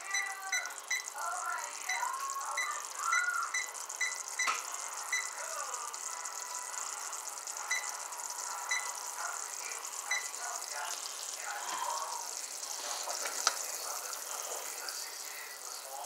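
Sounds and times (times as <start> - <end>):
kitchen timer beeping: 0.0 - 11.4
syrup bubbling in saucepan: 0.0 - 16.0
timer click: 0.1 - 1.2, 1.9 - 5.4, 7.7 - 8.1, 8.7 - 9.1, 10.0 - 10.4.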